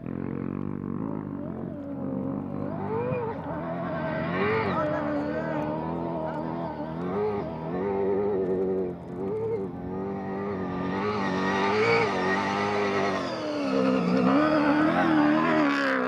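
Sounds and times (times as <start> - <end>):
truck engine revving: 0.0 - 16.0.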